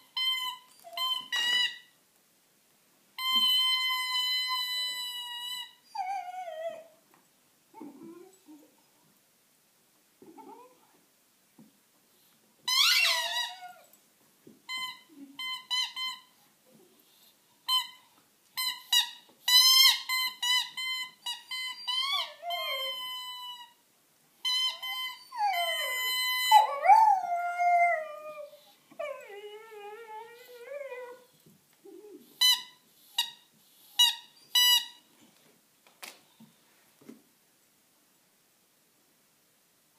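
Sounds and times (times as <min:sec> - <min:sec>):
squeaky toy squeaking: 0:00.0 - 0:01.9, 0:03.2 - 0:06.2, 0:12.7 - 0:13.9, 0:14.7 - 0:16.4, 0:17.7 - 0:23.8, 0:24.4 - 0:27.6, 0:32.4 - 0:35.0
puppy howling and whining: 0:04.4 - 0:07.0, 0:12.8 - 0:14.0, 0:21.5 - 0:23.8, 0:24.6 - 0:31.3.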